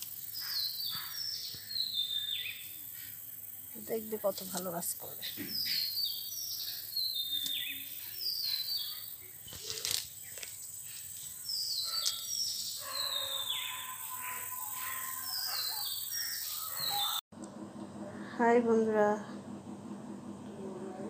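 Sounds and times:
bird chirping: 0.3s - 4.1s, 5.0s - 17.2s.

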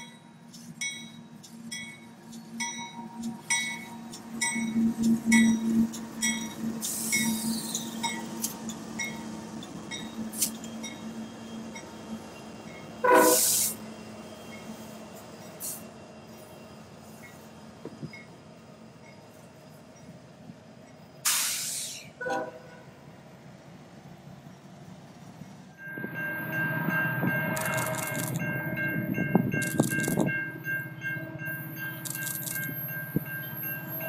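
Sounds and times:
diesel locomotive engines droning: 0.0s - 34.0s
rumble of freight cars: 0.0s - 34.0s
bell ringing: 25.8s - 34.0s.

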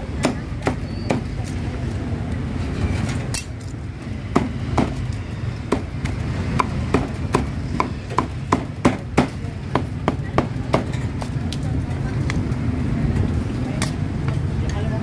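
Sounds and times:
cleaver chopping meat on wood: 4.3s - 5.0s, 5.7s - 10.9s.

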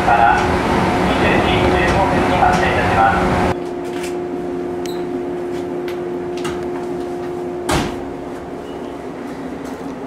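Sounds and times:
electric train equipment hum: 0.0s - 10.0s.

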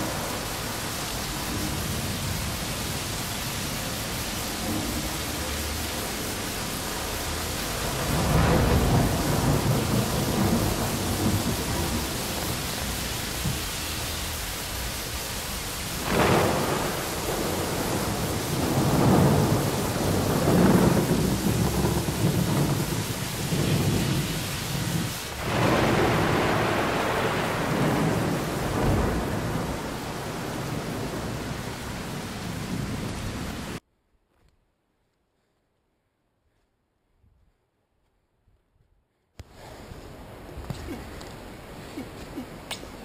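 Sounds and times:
wind buffeting microphone: 16.0s - 33.8s.

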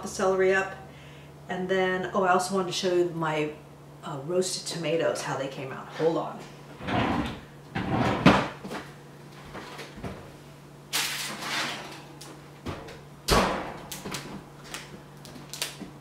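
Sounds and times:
baking tray sliding out: 6.8s - 8.5s, 11.2s - 11.9s
oven door shutting with thump: 13.3s - 13.8s.

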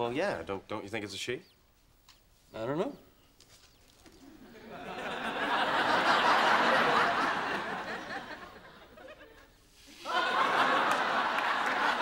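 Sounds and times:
studio audience laughing: 4.3s - 12.0s.

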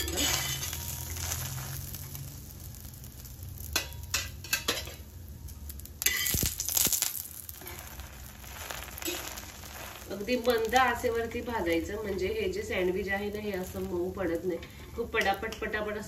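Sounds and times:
spatula scraping on a pan: 0.0s - 2.2s, 7.6s - 10.2s
oil sizzling on a pan: 0.0s - 16.0s.

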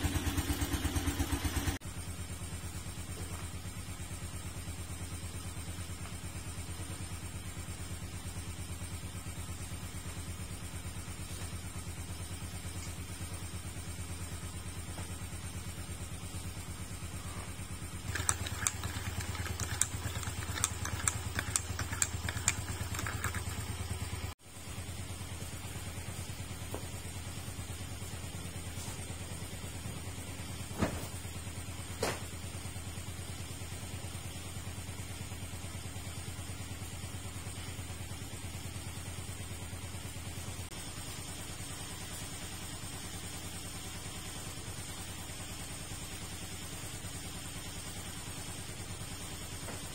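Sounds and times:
engine idling: 0.0s - 30.6s.

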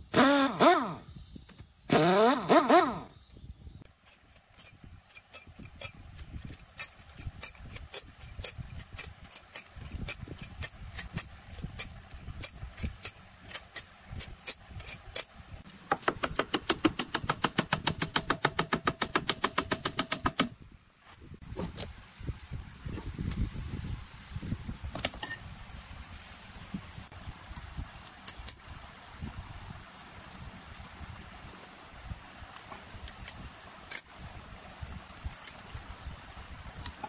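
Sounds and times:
hand tools clicking and tapping: 3.8s - 15.3s, 15.9s - 20.5s
fast run of ratchet clicks: 3.9s - 15.3s, 16.2s - 20.5s.

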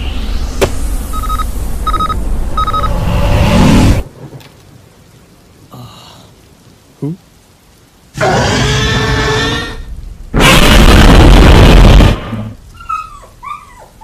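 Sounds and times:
rising whoosh: 0.0s - 4.0s
short electronic beeps: 1.1s - 3.0s.

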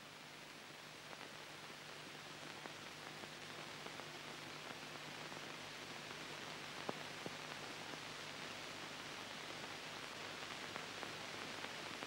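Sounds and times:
film soundtrack hiss: 0.0s - 12.0s.

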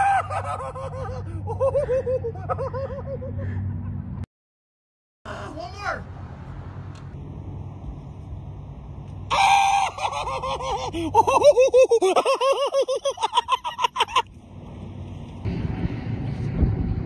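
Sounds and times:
person yelling: 5.3s - 6.0s
rapid laugh-like syllables: 9.9s - 14.3s.

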